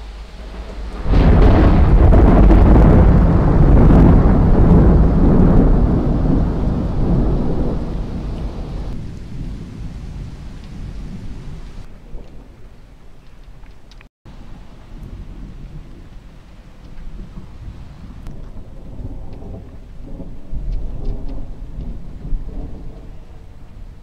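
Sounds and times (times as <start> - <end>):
rain hissing: 0.0 - 11.9, 14.3 - 18.3
thunder rumble: 0.0 - 13.6, 14.3 - 24.0.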